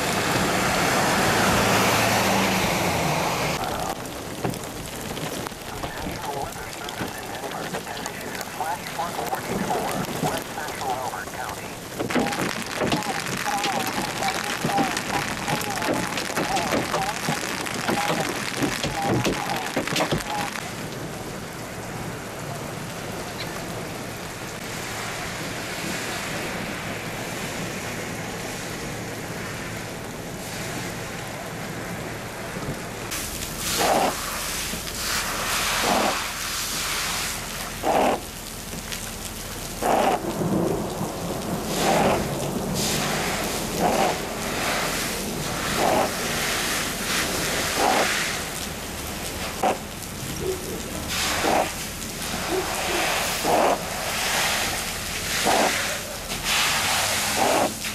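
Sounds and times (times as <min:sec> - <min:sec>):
rain and hail on pavement: 0:00.0 - 0:57.9
push broom scraping hailstones: 0:11.9 - 0:20.6, 0:33.2 - 0:38.3, 0:41.6 - 0:48.6, 0:51.0 - 0:57.9.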